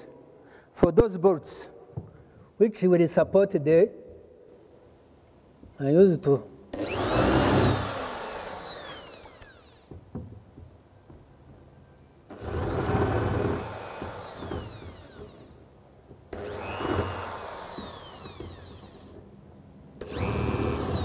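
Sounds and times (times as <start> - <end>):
electric drill boring into wall: 6.7 - 10.0, 12.3 - 15.7, 16.3 - 19.3, 20.0 - 21.0.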